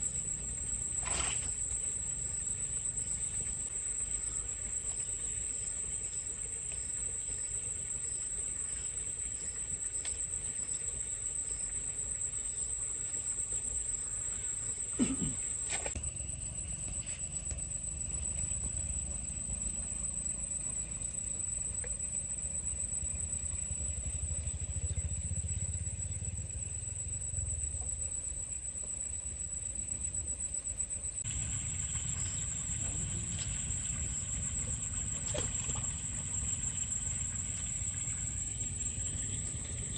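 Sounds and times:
insects buzzing: 0.0 - 39.9.

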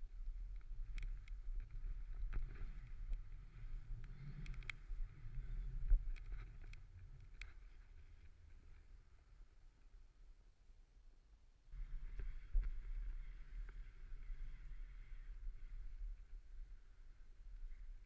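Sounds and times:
muffled wind rumble: 0.0 - 9.5, 11.8 - 18.0
small clicks and knocks: 0.5 - 3.2, 4.0 - 8.3.

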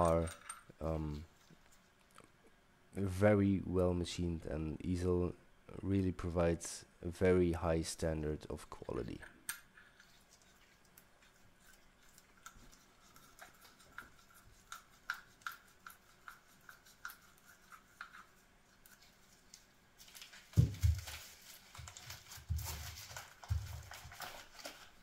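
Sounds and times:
wrapping paper crinkling: 19.0 - 25.0.

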